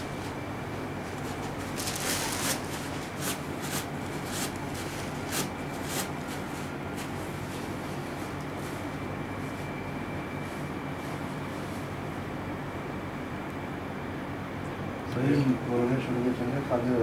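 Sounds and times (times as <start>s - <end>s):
steady low hum: 0.0s - 17.0s
fabric rubbing on microphone: 1.1s - 9.7s.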